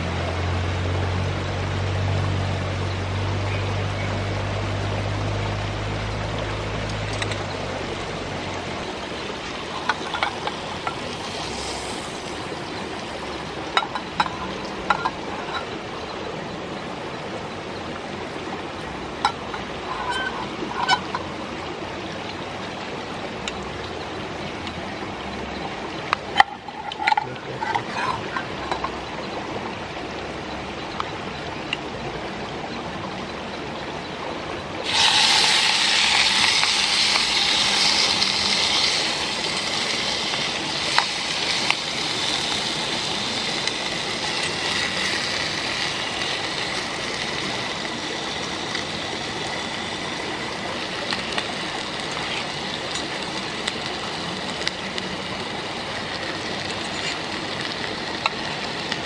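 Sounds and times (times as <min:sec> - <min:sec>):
steady hiss: 0:00.1 - 0:29.7, 0:34.8 - 0:59.0
meat sizzling in hot oil: 0:08.8 - 0:15.8, 0:19.2 - 0:21.2, 0:34.8 - 0:59.0.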